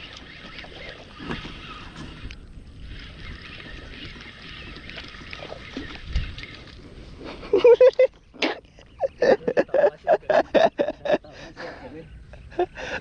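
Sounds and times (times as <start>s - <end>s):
spinning reel whirring: 0.0s - 6.7s.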